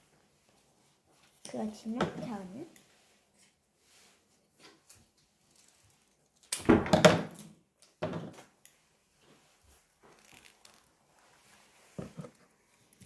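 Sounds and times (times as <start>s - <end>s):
objects clattering and rustling: 9.3s - 13.0s.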